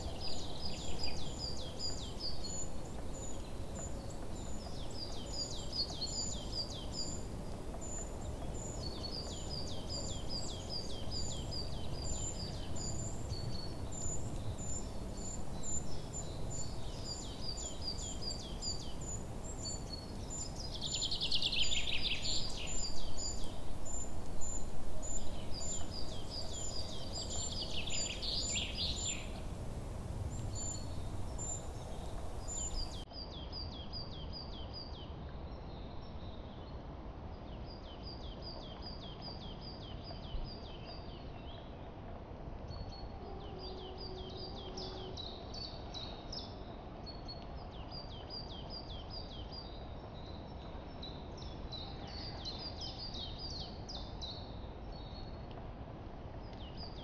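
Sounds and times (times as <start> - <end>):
songbirds singing: 0.0 - 35.0, 42.7 - 46.6.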